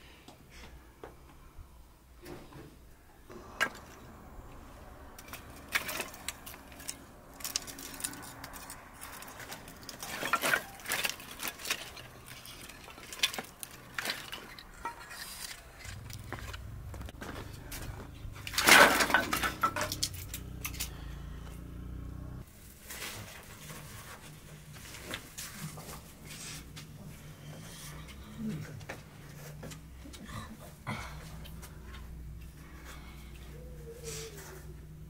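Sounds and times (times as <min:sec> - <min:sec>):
wooden sticks knocking together: 0:18.5 - 0:21.0.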